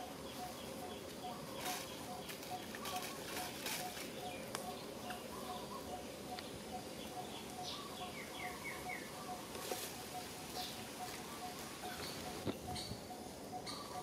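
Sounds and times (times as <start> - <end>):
faint clicks from leaf litter: 1.6 - 5.2.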